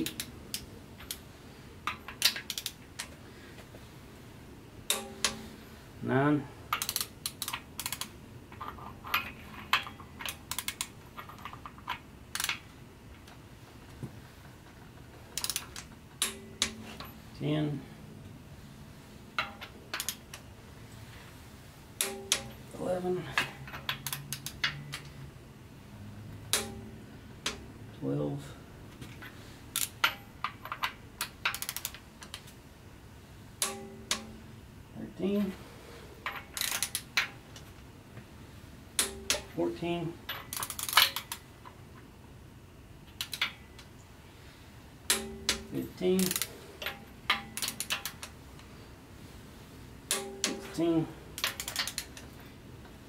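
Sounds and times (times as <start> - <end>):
torque wrench clicks and rattles: 1.9 - 3.1, 6.7 - 12.6, 15.2 - 16.7, 19.4 - 20.4, 23.6 - 25.1, 29.7 - 32.5, 36.3 - 37.3, 40.3 - 41.8, 43.1 - 43.9, 45.1 - 48.3, 51.4 - 52.4
wrench clinking against bolts: 40.2 - 41.4, 45.1 - 48.3.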